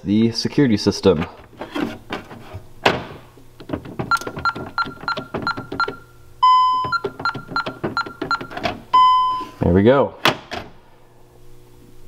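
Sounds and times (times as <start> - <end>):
keypad beeping: 4.0 - 9.4.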